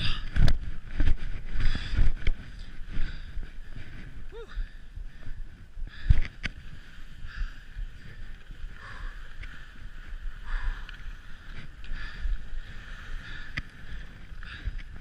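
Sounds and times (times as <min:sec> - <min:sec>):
wind rumble on microphone: 0:00.0 - 0:15.0
skis carving on snow: 0:06.4 - 0:15.0.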